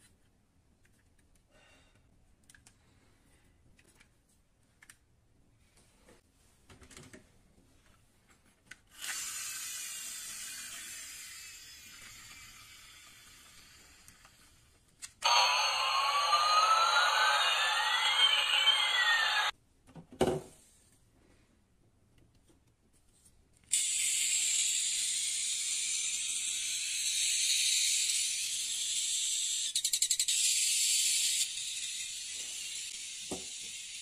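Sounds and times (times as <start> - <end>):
steady high hiss: 15.2 - 19.5
toy siren-like sliding tone: 15.2 - 19.5.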